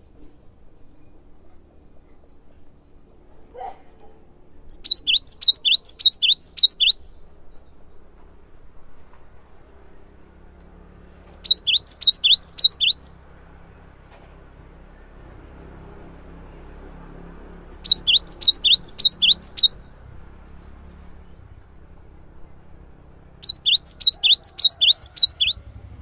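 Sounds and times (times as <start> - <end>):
bird singing high notes: 4.7 - 7.2, 11.3 - 13.2, 17.7 - 19.9, 23.4 - 25.6.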